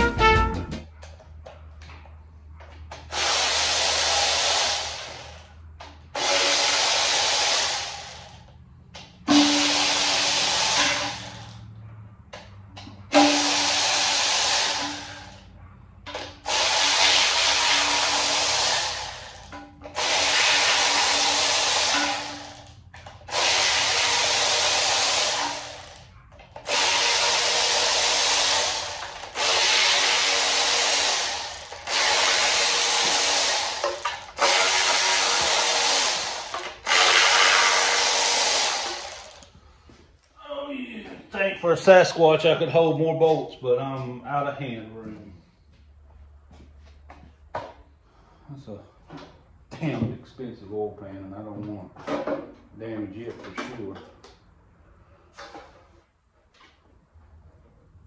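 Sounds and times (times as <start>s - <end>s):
cordless power tool spinning bolts: 2.9s - 11.7s, 12.8s - 15.5s, 16.1s - 39.6s.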